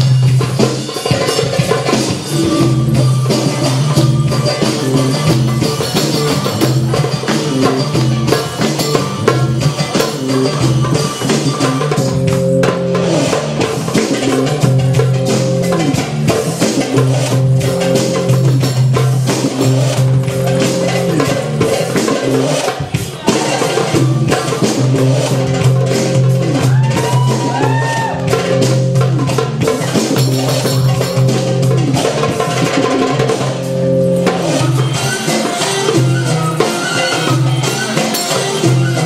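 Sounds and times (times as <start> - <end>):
sustained low melodic notes: 8.9 - 13.6.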